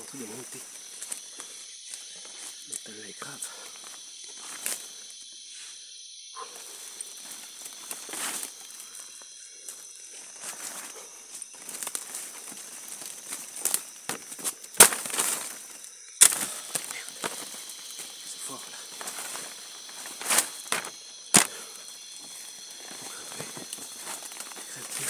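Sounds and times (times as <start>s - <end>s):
high-pitched insect drone: 0.0s - 25.0s
footsteps rustling through dry leaves: 10.3s - 25.0s
twig cracking: 11.6s - 18.2s, 20.0s - 21.6s.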